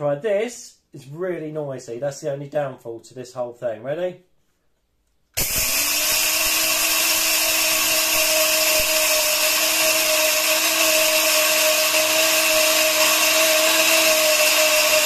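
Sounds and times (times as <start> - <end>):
electric grain grinder running: 5.4 - 15.0.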